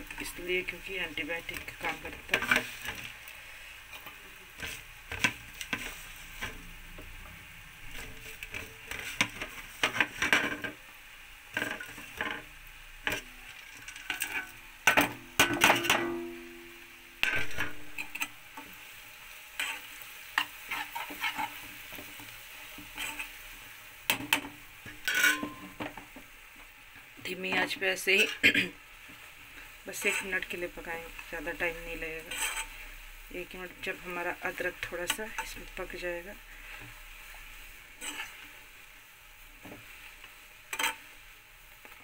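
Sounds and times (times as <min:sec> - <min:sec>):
steel spoon scraping a pan: 0:00.0 - 0:03.2, 0:03.8 - 0:10.8, 0:11.5 - 0:18.8, 0:19.5 - 0:26.0, 0:27.4 - 0:33.1, 0:33.8 - 0:38.7, 0:39.6 - 0:41.3
spices sizzling in hot oil: 0:00.0 - 0:42.0
steel plate clinking on a pan: 0:25.0 - 0:25.7.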